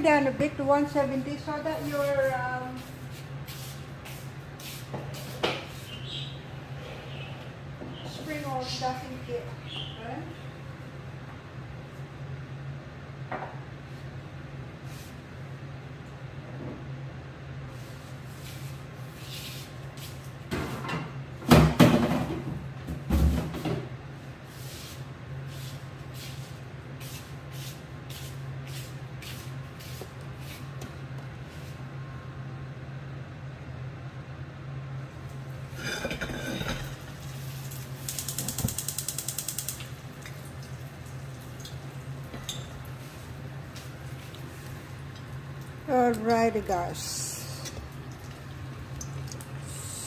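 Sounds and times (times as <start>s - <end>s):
steady low hum: 22.3s - 50.0s
cookware clattering on gas hob: 35.8s - 37.0s
gas igniter ticking: 38.1s - 39.9s.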